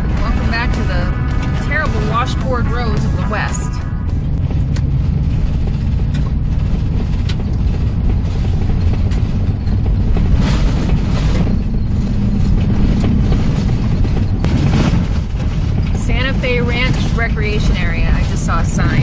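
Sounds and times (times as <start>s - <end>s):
vehicle rumbling on gravel road: 0.0s - 19.0s
knocks and rattles: 4.1s - 18.8s.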